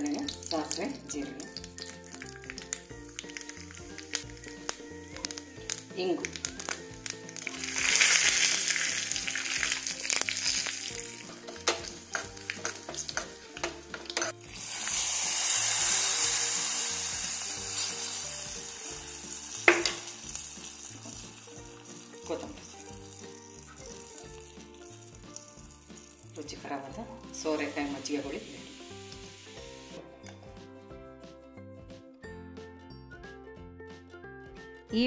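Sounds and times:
spices sizzling in oil: 0:00.0 - 0:30.5
spoon stirring in pan: 0:11.3 - 0:14.5
loud hiss of oil hitting liquid: 0:14.5 - 0:17.9.

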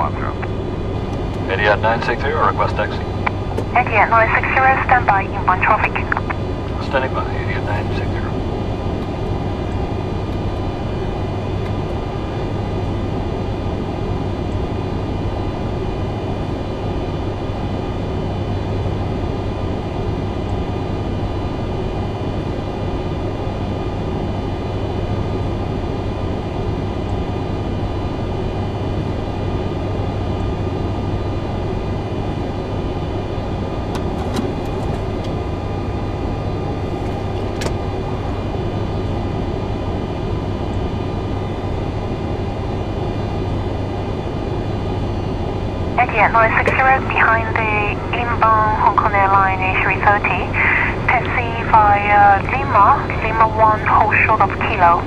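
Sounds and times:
faint steady whines: 0:00.0 - 0:55.0
jet engines idling: 0:00.0 - 0:55.0
low hum: 0:00.0 - 0:55.0
cabin airflow rushing: 0:33.7 - 0:35.4.

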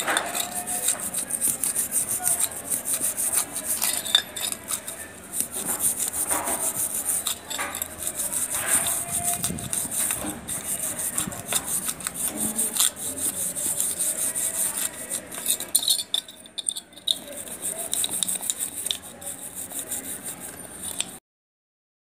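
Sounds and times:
brush scratching metal: 0:00.0 - 0:21.2.

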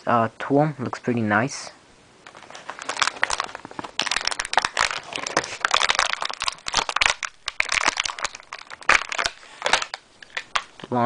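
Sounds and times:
plastic packaging crinkling: 0:02.2 - 0:11.0.

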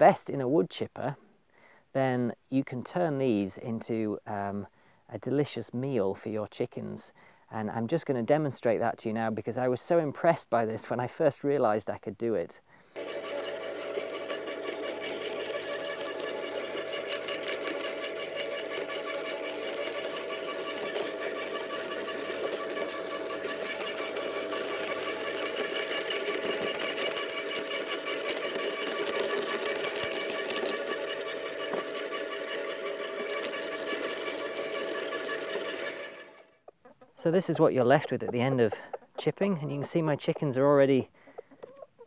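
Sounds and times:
garden shredder motor whine: 0:12.8 - 0:38.6.

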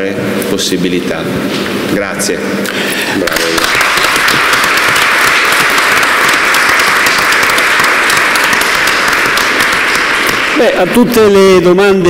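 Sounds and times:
audience applauding: 0:03.2 - 0:11.5.

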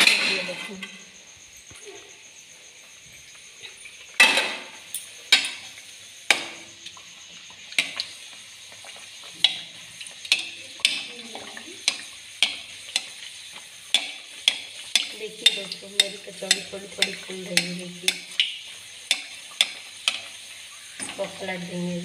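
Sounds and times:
deep-frying sizzle in oil: 0:00.0 - 0:22.0
metal ladle knocking pan: 0:04.2 - 0:05.7, 0:06.3 - 0:06.6, 0:10.3 - 0:13.2, 0:13.9 - 0:20.3.

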